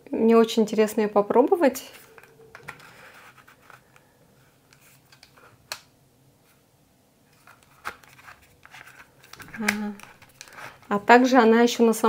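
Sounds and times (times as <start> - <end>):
faint scratching and handling: 1.8 - 5.6, 7.3 - 11.3.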